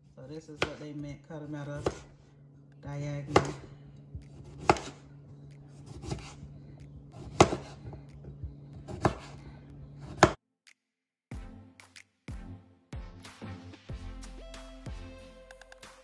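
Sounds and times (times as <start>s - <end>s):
knife chopping on plastic board: 0.4s - 2.2s, 3.0s - 5.0s, 5.6s - 10.4s
low hum: 1.0s - 10.2s.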